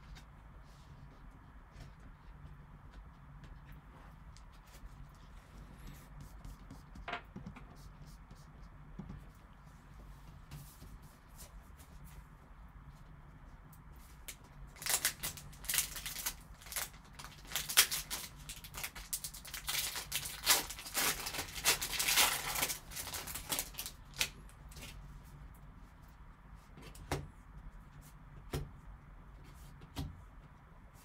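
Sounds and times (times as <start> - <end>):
wrapper crinkling and tearing: 14.3 - 25.0.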